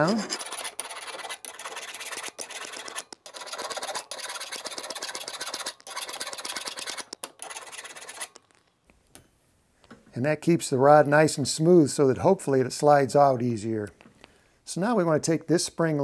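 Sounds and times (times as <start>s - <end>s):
metal file rasping on metal rod: 0.0s - 8.4s.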